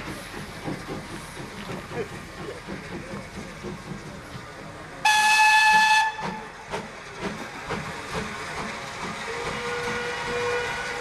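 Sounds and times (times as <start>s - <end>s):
steam locomotive whistle: 5.0s - 6.5s, 9.3s - 11.0s.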